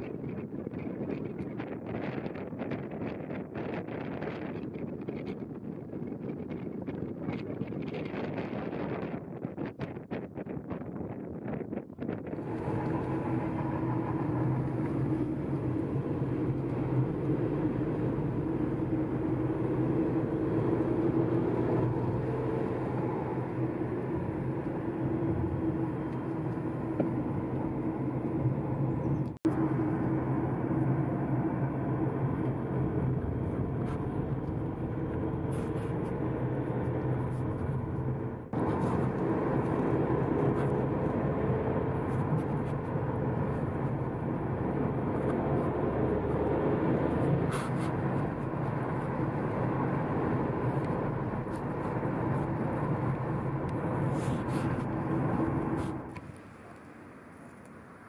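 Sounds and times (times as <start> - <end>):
car engine hum: 12.3 - 58.0.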